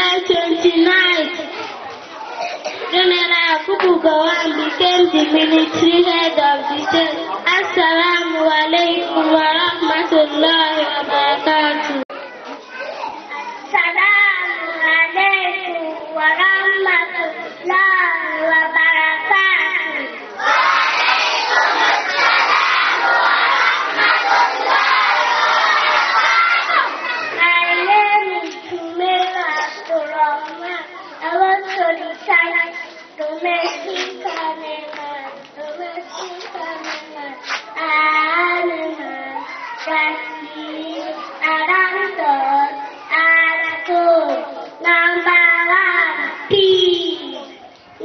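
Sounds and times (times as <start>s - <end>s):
child singing into a microphone: 0.0s - 48.0s
crowd cheering: 20.4s - 27.7s.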